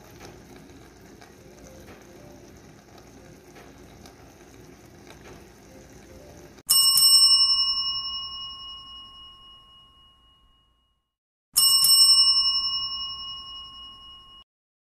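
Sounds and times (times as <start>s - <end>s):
bell ringing: 6.7s - 11.0s, 11.6s - 14.5s.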